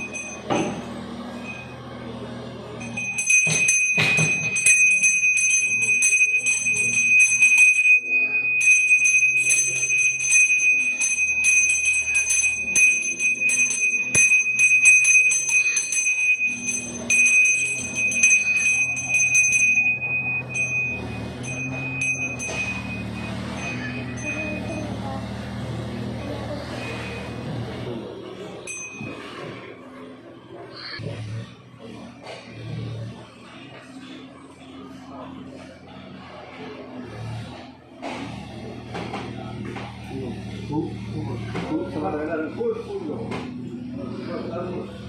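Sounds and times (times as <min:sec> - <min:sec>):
hand bell ringing rapidly: 0:00.0 - 0:01.8, 0:02.8 - 0:27.4, 0:28.6 - 0:29.5.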